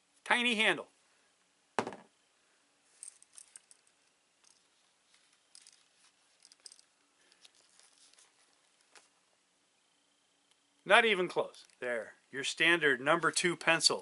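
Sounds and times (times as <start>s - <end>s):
leather sheath clicks and rustles: 3.0s - 9.1s.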